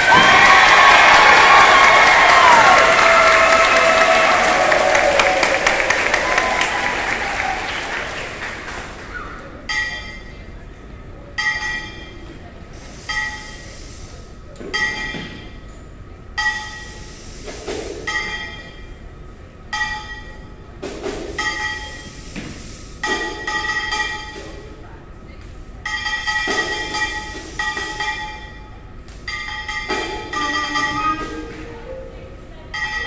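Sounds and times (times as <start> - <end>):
applause: 0.0 - 9.6.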